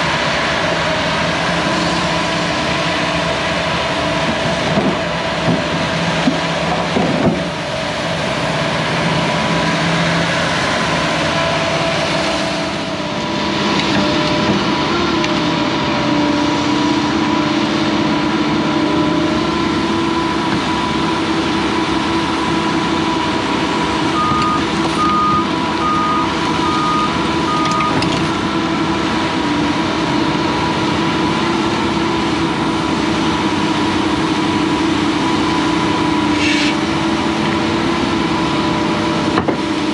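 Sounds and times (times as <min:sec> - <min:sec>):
diesel engine running: 0:00.0 - 0:39.9
alarm beeps: 0:24.2 - 0:28.0.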